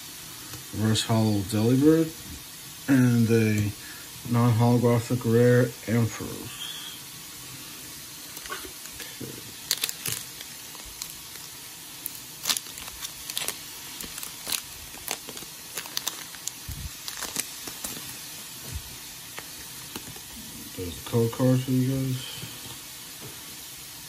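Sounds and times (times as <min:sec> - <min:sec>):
faint steady hiss: 0:00.0 - 0:24.0
foil wrapper crinkling and tearing: 0:08.3 - 0:20.3.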